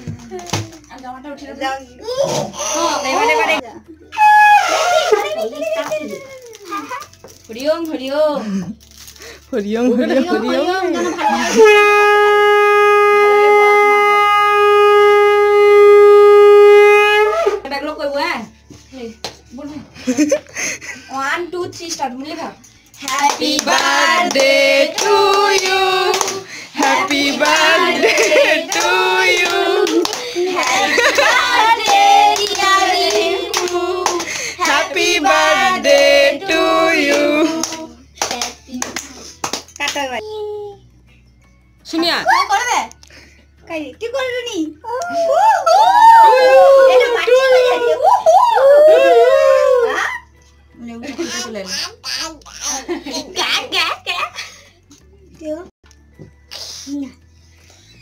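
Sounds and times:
conch shell blown: 0:04.1 - 0:05.0, 0:11.4 - 0:17.6
hands clapping along: 0:23.0 - 0:34.8, 0:37.6 - 0:40.0
group singing a celebration song: 0:23.0 - 0:38.4.

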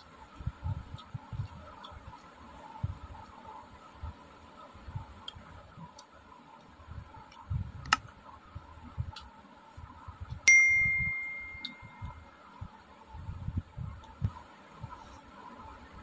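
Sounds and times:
soft chewing: 0:00.0 - 0:04.2
steel plate ringing: 0:10.5 - 0:12.1.

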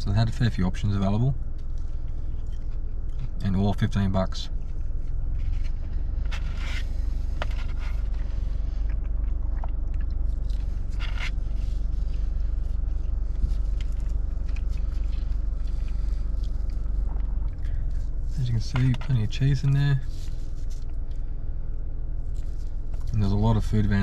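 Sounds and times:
low car rumble: 0:00.0 - 0:24.0
flatbread tearing and rustling: 0:04.9 - 0:17.7.

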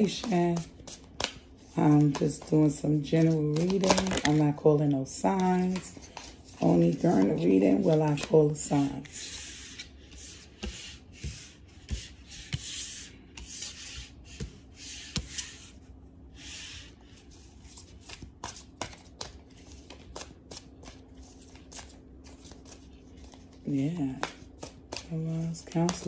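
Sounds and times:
deck of cards shuffled: 0:00.0 - 0:04.5
cards sliding on wooden table: 0:07.9 - 0:15.8, 0:16.4 - 0:18.2.

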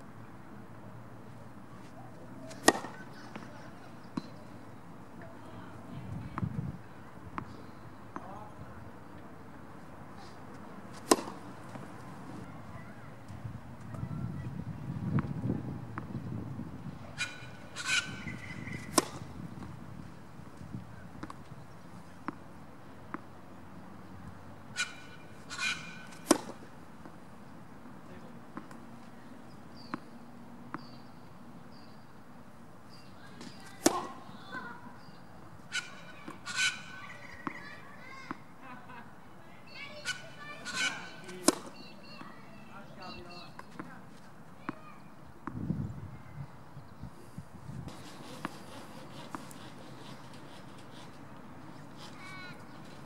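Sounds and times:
tennis ball impacts: 0:01.9 - 0:03.5, 0:10.9 - 0:12.4, 0:17.9 - 0:19.8, 0:24.8 - 0:27.2, 0:33.4 - 0:34.6, 0:40.8 - 0:41.8.

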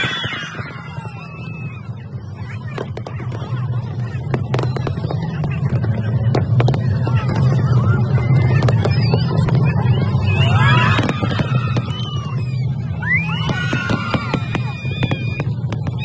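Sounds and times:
crowd voices: 0:00.0 - 0:16.0
fireworks bursting: 0:00.0 - 0:16.0
sharp firework cracks: 0:13.4 - 0:15.9.

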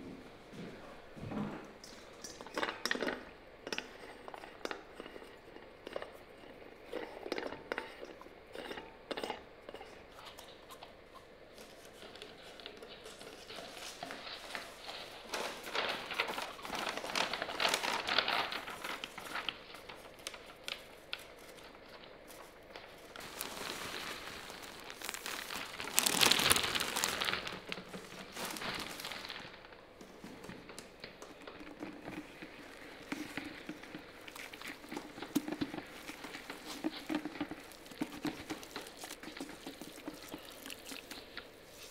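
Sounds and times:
paper bag crinkling: 0:13.1 - 0:41.9.

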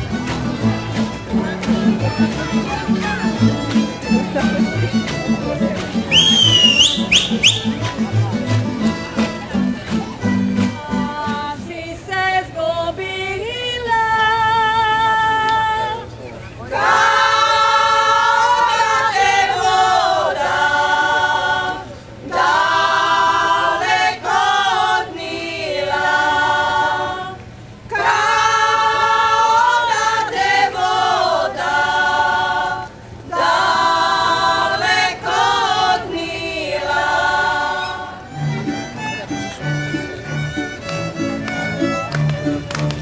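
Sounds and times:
string band playing: 0:00.0 - 0:11.7, 0:31.8 - 0:43.0
women's choir singing a cappella: 0:10.8 - 0:38.3.

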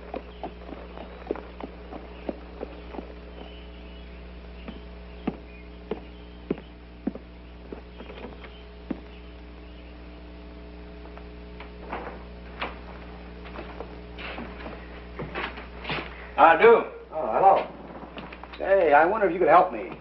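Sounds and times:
footsteps on wooden boards: 0:00.0 - 0:09.2, 0:11.2 - 0:16.2
electrical mains hum: 0:00.0 - 0:20.0.

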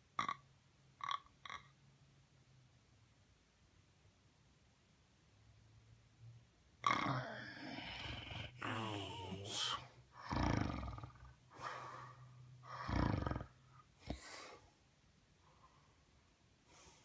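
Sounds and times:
man snoring: 0:06.9 - 0:14.2.

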